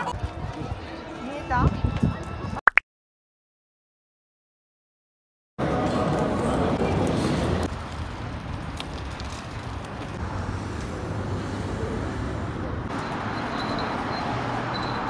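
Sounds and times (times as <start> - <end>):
hissy street background: 5.6 - 15.0
road traffic rumble: 5.6 - 15.0.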